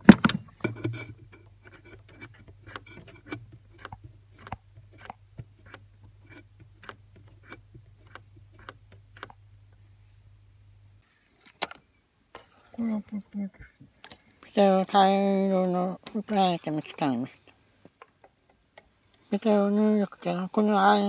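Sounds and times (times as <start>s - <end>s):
low hum: 10.2s - 21.0s.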